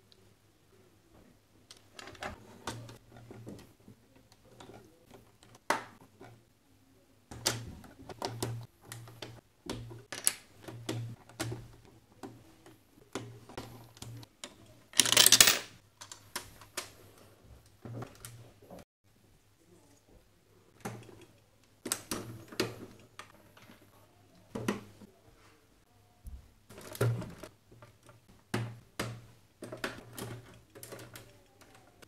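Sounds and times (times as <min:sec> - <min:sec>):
plastic bricks clicking: 0:09.0 - 0:10.5, 0:14.4 - 0:16.9.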